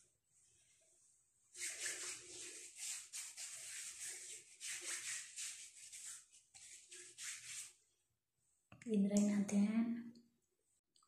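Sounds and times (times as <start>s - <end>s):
palms rubbing together: 1.5s - 7.8s.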